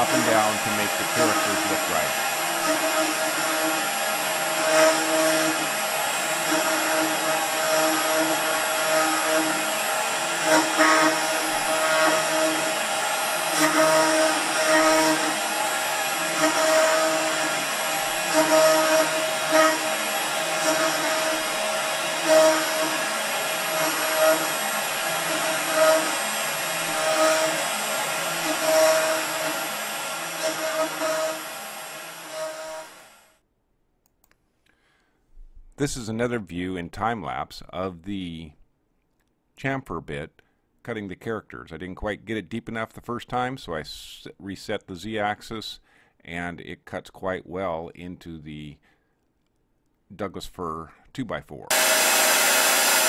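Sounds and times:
humming motor tone: 0.0s - 33.1s
router spindle running: 0.0s - 33.2s, 51.7s - 53.0s.

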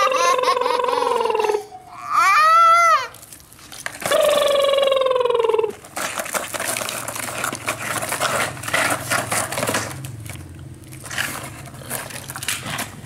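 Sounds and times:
plastic toys scraping through sand: 5.8s - 10.2s.

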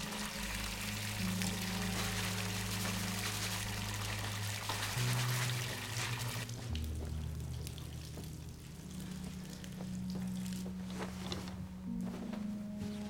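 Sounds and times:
water running from tap: 0.0s - 10.4s
low sustained music notes: 0.0s - 13.0s.

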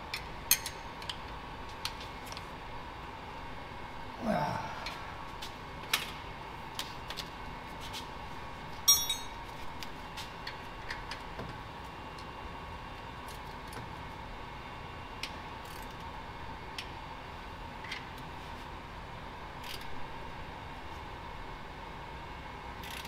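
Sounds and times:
steady hum: 2.6s - 6.7s
metal tools clicking and tapping: 8.9s - 9.4s
ringing metal clink: 8.9s - 9.4s.

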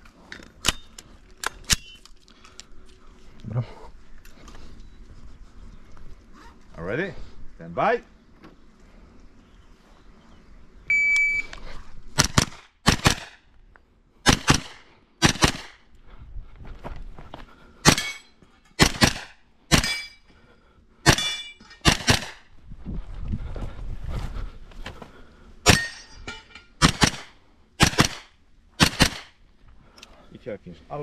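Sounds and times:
shot timer beep: 10.9s - 11.5s
carbine gunshots: 12.2s - 13.4s, 14.2s - 15.8s, 18.8s - 20.1s, 21.0s - 22.5s, 26.8s - 29.4s.

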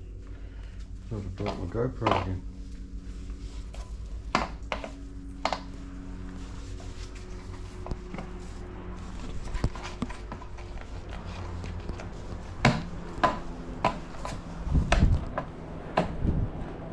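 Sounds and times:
low hum: 0.0s - 16.9s.

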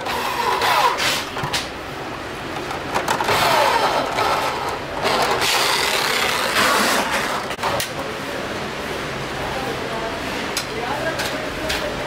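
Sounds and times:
electric drill motor: 3.3s - 7.0s.

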